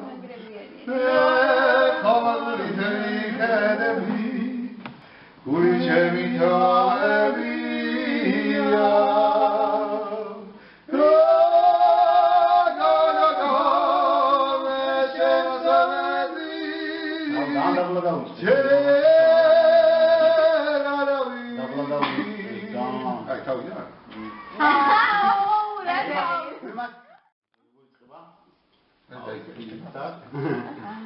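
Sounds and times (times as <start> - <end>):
voices singing in harmony: 0.0 - 23.3.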